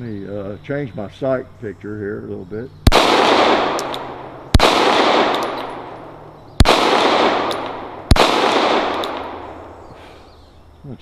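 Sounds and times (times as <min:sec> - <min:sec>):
pistol shots: 0:02.8 - 0:09.9
gunshot echo: 0:02.9 - 0:10.0.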